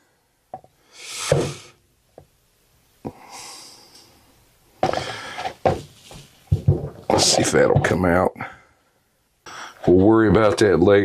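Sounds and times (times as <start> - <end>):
short breathy hisses: 0.8 - 1.8.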